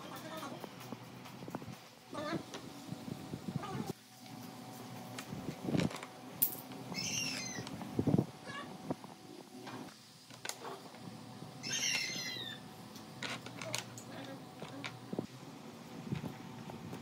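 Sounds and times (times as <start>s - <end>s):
high-pitched animal calls: 6.9s - 7.7s, 11.6s - 12.6s.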